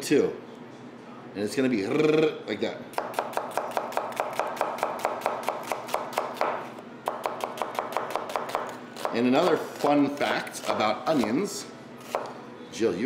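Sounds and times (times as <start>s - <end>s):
knife slicing onion on board: 3.0s - 12.4s.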